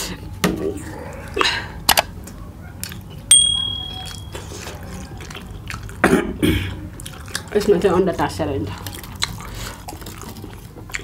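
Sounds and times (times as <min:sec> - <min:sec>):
chewing and wet smacking: 0:01.1 - 0:11.0
bell ding: 0:03.3 - 0:04.3.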